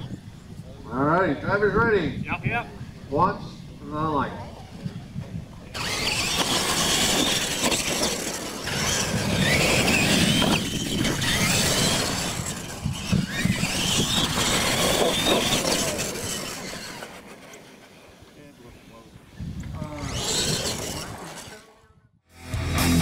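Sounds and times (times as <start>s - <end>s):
tyres on dirt: 4.6s - 23.0s
electric motors whining: 5.7s - 18.3s, 19.4s - 21.7s.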